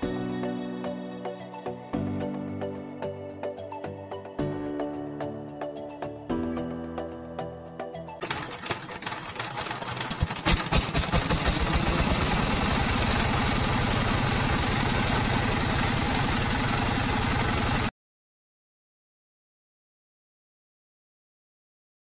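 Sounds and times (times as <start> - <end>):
diesel engine chugging: 8.2 - 17.9.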